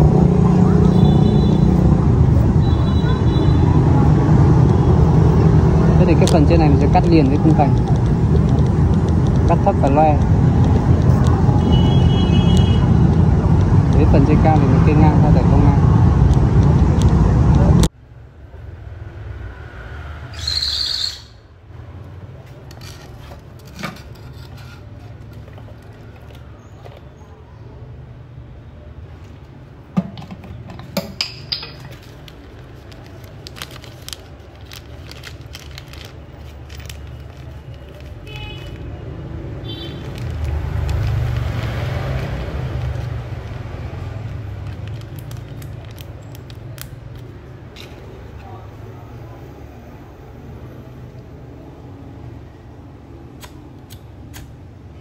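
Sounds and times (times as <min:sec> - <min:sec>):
high bird call: 0:20.4 - 0:21.5.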